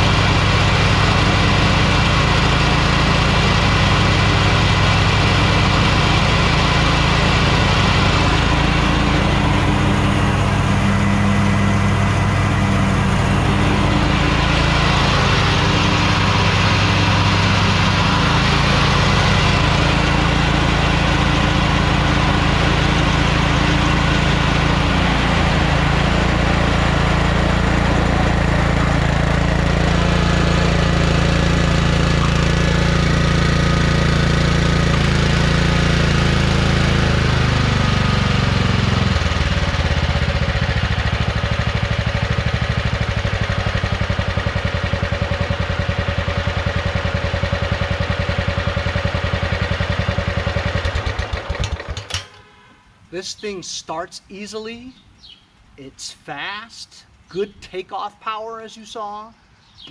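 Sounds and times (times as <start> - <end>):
lawn tractor engine running: 0.0 - 53.3
man talking: 53.1 - 55.0, 55.8 - 59.4.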